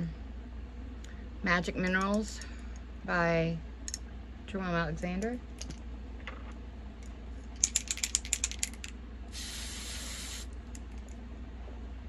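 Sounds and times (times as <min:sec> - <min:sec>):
aerosol can rattling: 0:07.6 - 0:08.9
aerosol spray hiss: 0:09.3 - 0:10.5.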